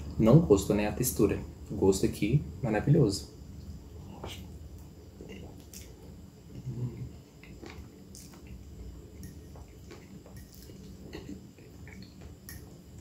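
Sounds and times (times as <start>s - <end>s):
chewing soft food: 3.6s - 13.0s
wet mouth clicks and smacks: 7.4s - 8.6s.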